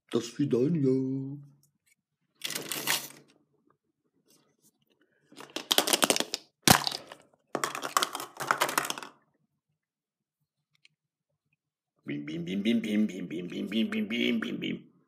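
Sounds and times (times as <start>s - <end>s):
plastic egg halves snapping apart: 5.4s - 9.1s
plastic egg clicking and rattling: 5.4s - 9.2s.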